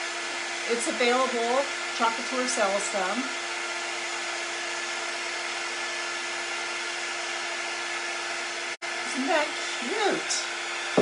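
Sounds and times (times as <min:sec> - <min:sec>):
heat tool blowing air: 0:00.0 - 0:11.0.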